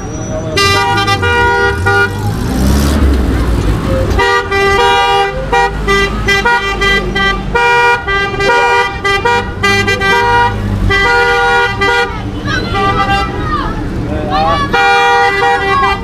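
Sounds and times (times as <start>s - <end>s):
traffic rumble: 0.0s - 16.0s
vehicle horn short blasts: 0.6s - 2.2s.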